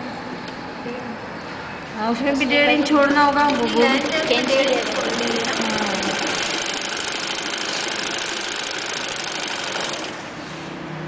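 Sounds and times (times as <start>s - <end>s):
sewing machine clattering: 3.0s - 10.2s.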